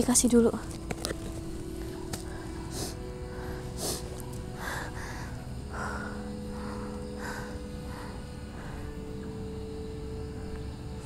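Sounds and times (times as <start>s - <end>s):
faint steady hum: 0.0s - 11.0s
woman breathing: 2.2s - 9.5s.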